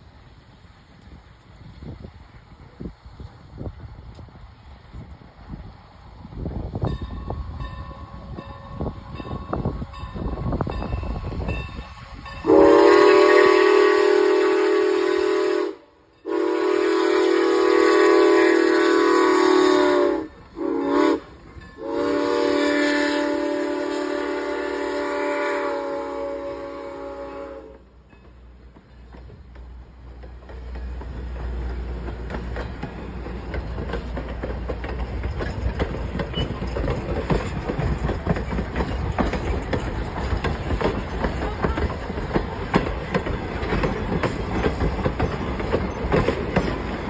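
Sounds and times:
low rumble of approaching train: 0.0s - 47.0s
steam whistle blasts: 12.4s - 27.9s.

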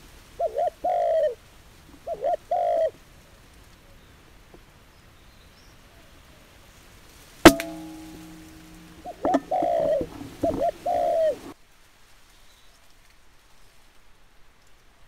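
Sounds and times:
dove cooing: 0.4s - 1.4s, 2.0s - 2.9s, 9.0s - 11.5s.

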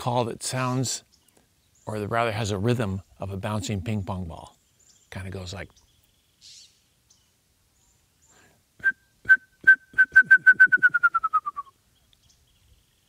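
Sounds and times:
person whistling bird song: 8.8s - 11.8s.

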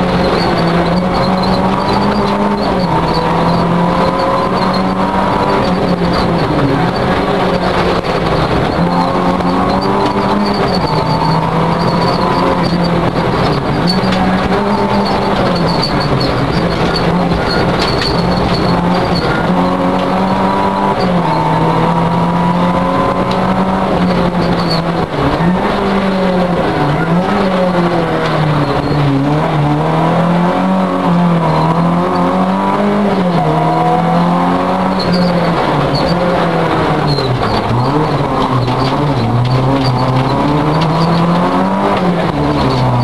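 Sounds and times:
rally car engine at high revs: 0.0s - 43.0s.

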